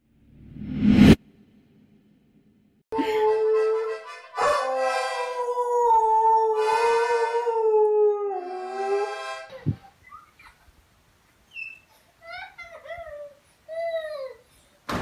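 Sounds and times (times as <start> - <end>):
toy accordion notes: 3.0 - 5.3.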